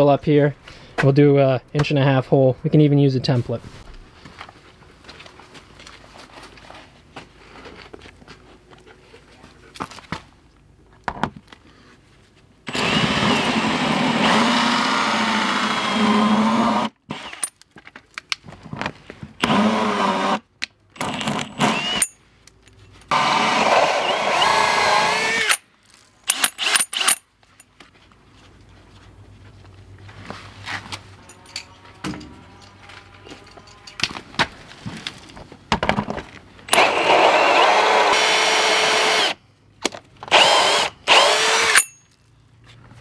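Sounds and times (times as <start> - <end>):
cordless drill whining: 12.7 - 17.5, 19.4 - 20.4, 21.0 - 22.1, 23.1 - 25.6, 26.3 - 27.2, 36.7 - 39.4, 40.3 - 42.0.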